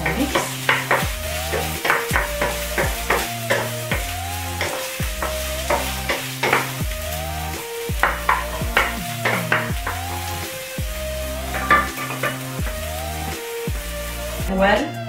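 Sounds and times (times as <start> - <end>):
wooden spoon scraping a pan: 0.0 - 6.8, 8.0 - 10.6, 11.4 - 13.0
onions sizzling in a frying pan: 0.0 - 14.9
background music with bass: 0.0 - 15.0.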